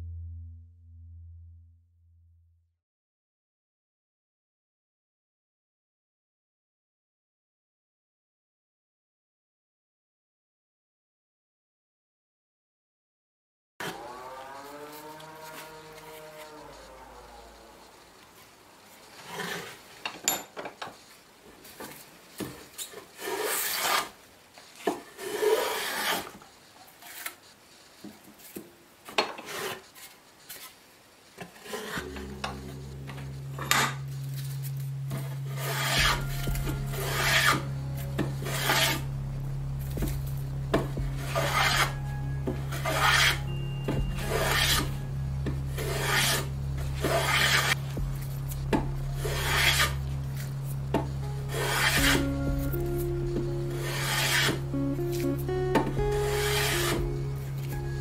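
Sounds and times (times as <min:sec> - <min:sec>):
steady low hum: 0:00.0 - 0:02.2, 0:32.0 - 0:58.0
hand tool rasping on wood: 0:35.5 - 0:37.7, 0:41.2 - 0:41.9, 0:42.7 - 0:43.4, 0:45.8 - 0:47.8, 0:49.2 - 0:50.0, 0:51.5 - 0:52.4, 0:53.8 - 0:54.6, 0:56.3 - 0:57.0.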